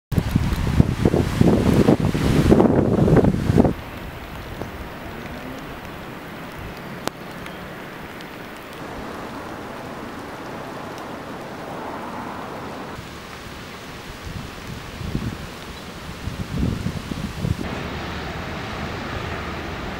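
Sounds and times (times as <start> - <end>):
wind buffeting microphone: 0.1 - 7.4, 14.0 - 17.7
steady hiss of water: 0.1 - 19.9.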